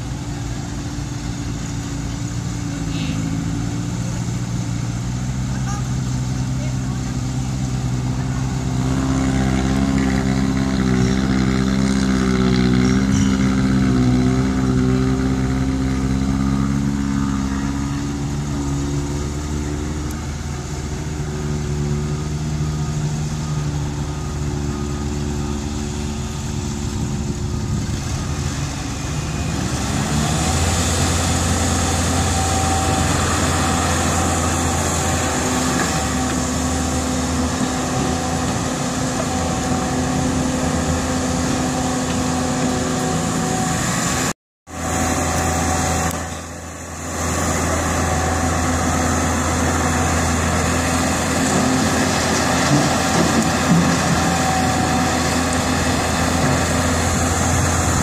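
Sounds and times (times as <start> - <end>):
diesel engines running: 0.0 - 58.0
excavator engine digging: 0.0 - 58.0.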